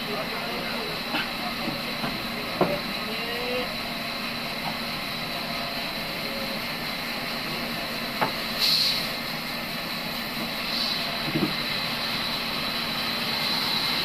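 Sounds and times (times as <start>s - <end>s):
short hiss: 8.5s - 9.2s, 10.7s - 11.1s
log knocking on saw table: 11.2s - 11.6s.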